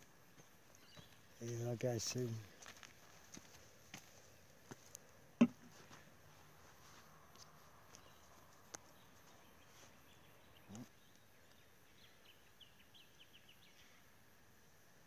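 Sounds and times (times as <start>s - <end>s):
faint outdoor ambience: 0.0s - 15.0s.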